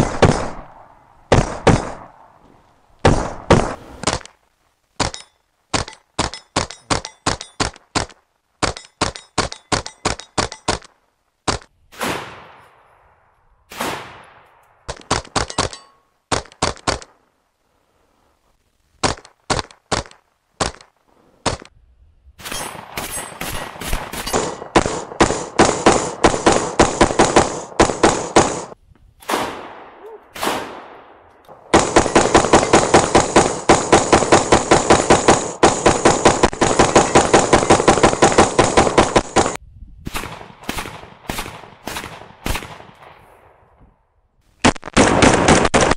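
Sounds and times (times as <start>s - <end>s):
rifle gunfire: 22.4s - 43.2s, 44.6s - 45.9s.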